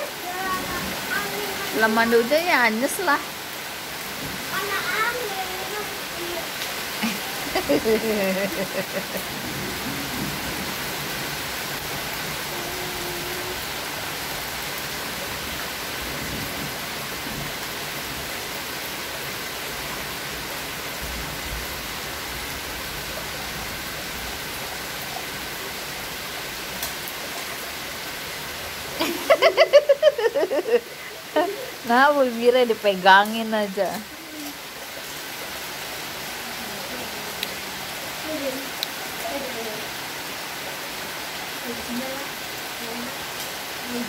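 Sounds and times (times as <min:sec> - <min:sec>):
child's voice: 0:00.0 - 0:01.8, 0:04.5 - 0:06.6, 0:12.5 - 0:13.6, 0:33.8 - 0:34.6, 0:38.2 - 0:39.8
steady rain falling: 0:00.0 - 0:44.0.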